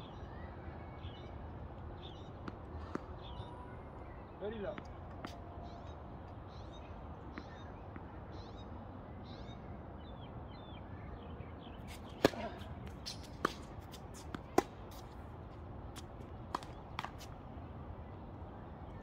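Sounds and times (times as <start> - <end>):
tennis ball bouncing on hard court: 2.4 - 3.5, 12.1 - 15.2, 16.0 - 17.3
tennis ball struck by rackets: 11.9 - 15.2, 16.0 - 17.3.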